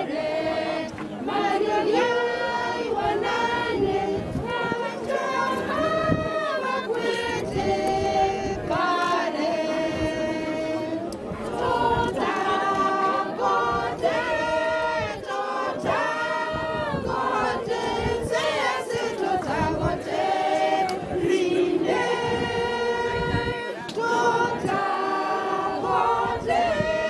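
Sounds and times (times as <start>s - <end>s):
choir singing: 0.0s - 27.0s.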